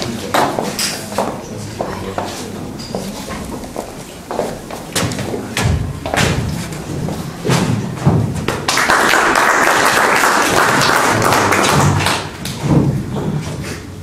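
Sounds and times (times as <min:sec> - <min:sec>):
audience applauding: 0:08.6 - 0:12.6.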